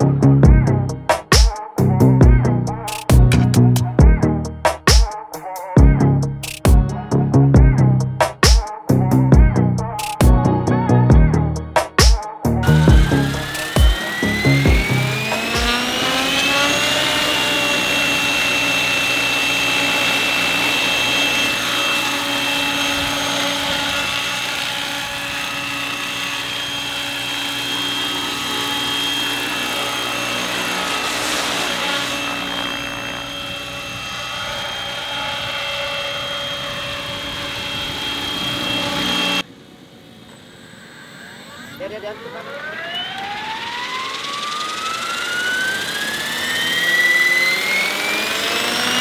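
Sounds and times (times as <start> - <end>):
model helicopter motor and rotor: 12.6 - 39.5, 40.2 - 49.0.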